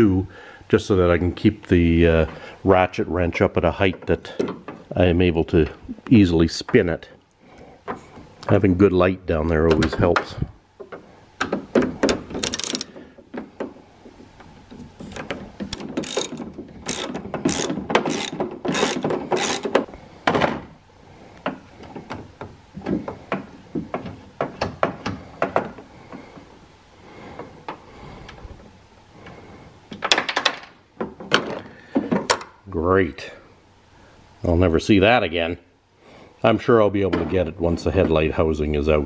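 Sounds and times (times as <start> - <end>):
ratchet wrench clicking: 12.4 - 12.9, 15.7 - 19.7.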